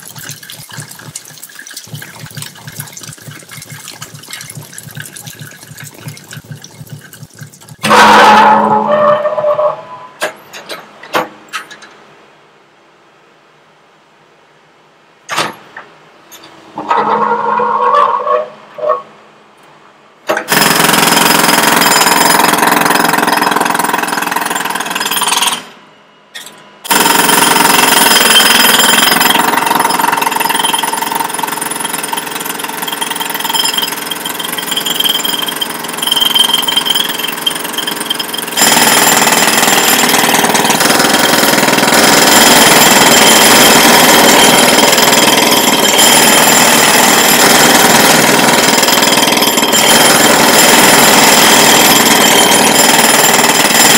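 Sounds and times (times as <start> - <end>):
jackhammer breaking pavement: 1.8 - 9.6, 20.3 - 25.7, 26.8 - 53.9.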